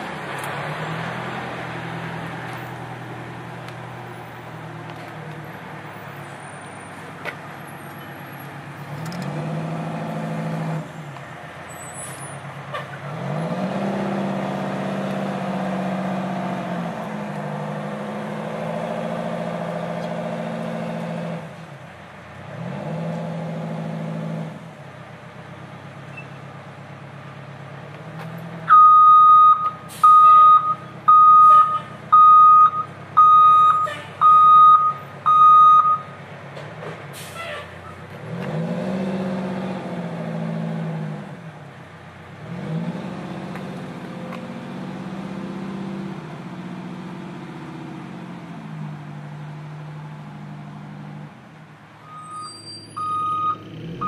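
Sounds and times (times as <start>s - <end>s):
fire truck engine revving: 7.9s - 21.6s, 36.8s - 51.4s
reversing alarm beeping: 28.7s - 36.1s, 52.0s - 54.0s.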